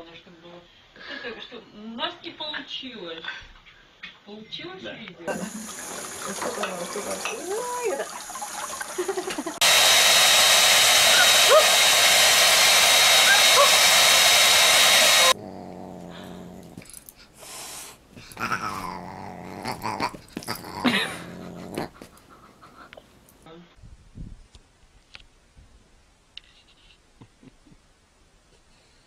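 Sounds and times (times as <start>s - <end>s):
tap running water: 5.3s - 10.6s
hair dryer running: 9.4s - 15.4s
dog sounds: 11.1s - 11.8s, 13.2s - 14.0s, 15.0s - 23.2s.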